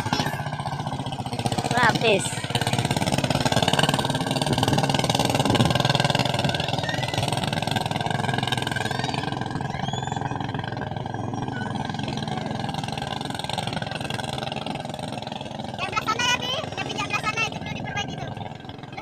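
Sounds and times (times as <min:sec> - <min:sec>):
boat engine running: 0:00.0 - 0:19.0.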